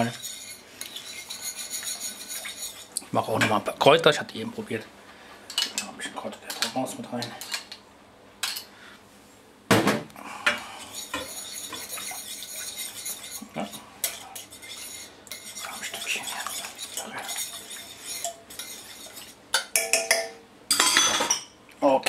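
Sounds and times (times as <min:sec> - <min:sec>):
metal whisk scraping a pan: 0:00.0 - 0:03.6, 0:10.8 - 0:19.8.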